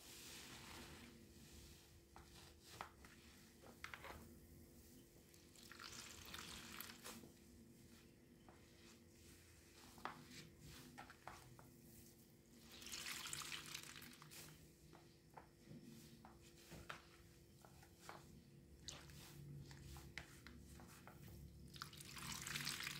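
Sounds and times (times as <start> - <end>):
wet sponge squelching: 5.4 - 7.3, 12.6 - 14.6, 18.8 - 21.1.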